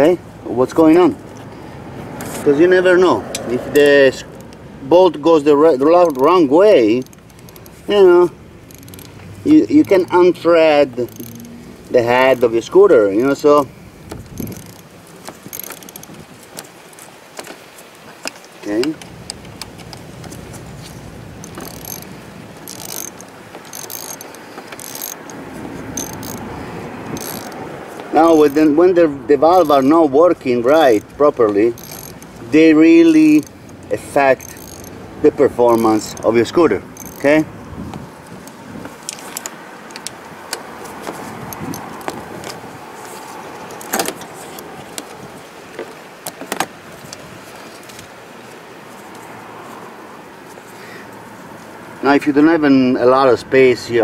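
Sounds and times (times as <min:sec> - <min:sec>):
ratchet wrench clicking: 0:05.6 - 0:13.4, 0:14.1 - 0:16.2, 0:18.8 - 0:37.4, 0:41.5 - 0:42.2.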